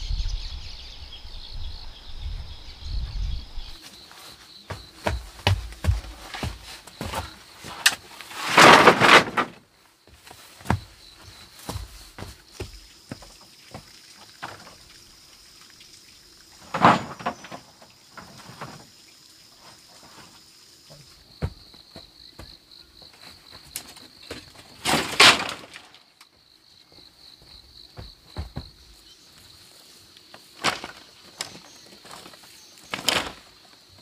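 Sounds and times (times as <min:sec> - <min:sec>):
insects chirring: 0:00.0 - 0:34.0.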